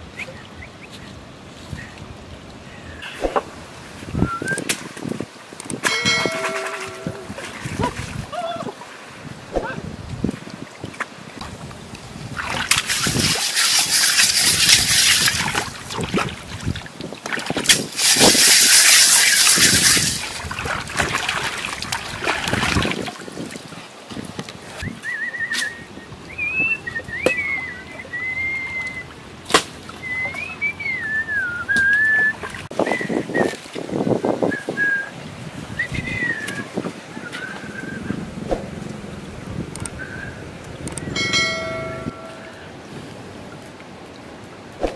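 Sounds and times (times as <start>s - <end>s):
thin wavering whistle: 4.2s - 4.7s, 24.8s - 29.1s, 30.0s - 33.6s, 40.0s - 40.4s
hands splashing in shallow water: 12.3s - 24.6s
sharp clicks: 39.7s - 40.0s, 40.6s - 41.1s.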